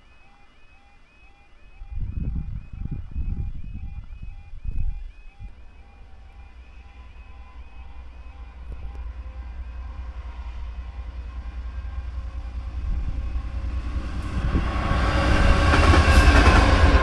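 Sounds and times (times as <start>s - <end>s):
crossing alarm warbling: 0.0s - 17.0s
diesel locomotive passing: 5.2s - 17.0s
train wheels on rails: 5.6s - 17.0s.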